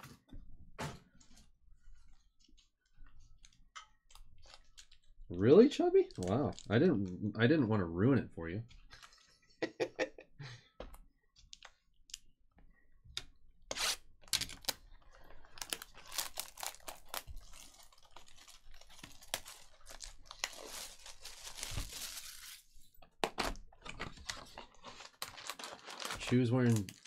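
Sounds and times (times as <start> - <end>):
foil packs crinkling: 14.5 - 22.7, 24.0 - 27.0.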